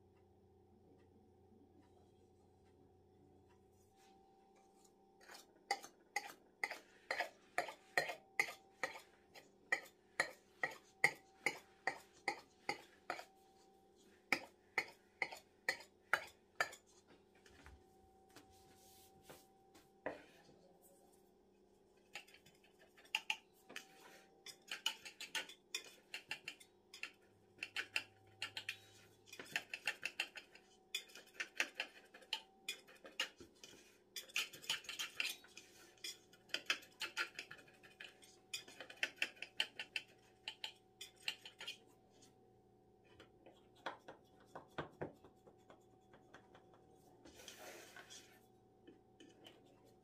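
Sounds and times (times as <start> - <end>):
knife cutting and scraping metal tray: 22.1 - 41.9.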